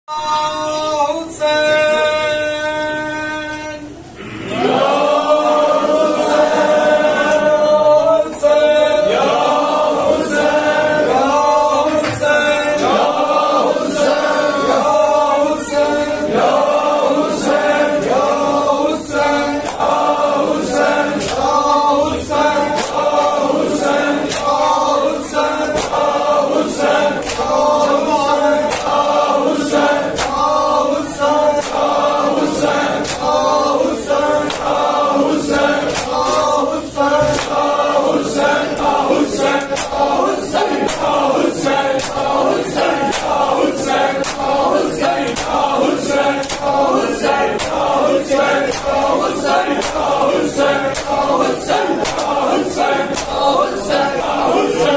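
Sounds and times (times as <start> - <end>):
men chanting in unison: 0.1 - 54.9
hands slapping chests: 39.5 - 40.1, 40.8 - 41.2, 41.9 - 42.4, 43.0 - 45.7, 46.3 - 46.8, 50.9 - 52.4, 53.1 - 53.5.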